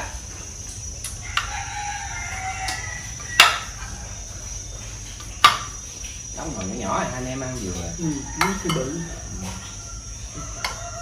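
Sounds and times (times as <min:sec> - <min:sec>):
rooster crowing: 0:01.2 - 0:04.5, 0:07.8 - 0:11.0.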